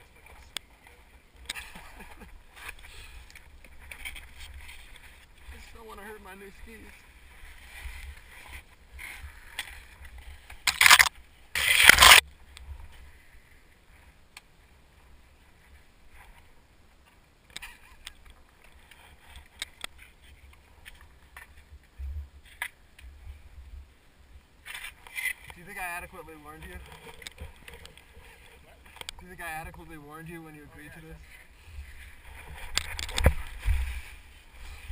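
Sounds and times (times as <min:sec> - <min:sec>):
skis scraping through snow: 0:30.9 - 0:34.9
small clicks and knocks: 0:32.7 - 0:33.8.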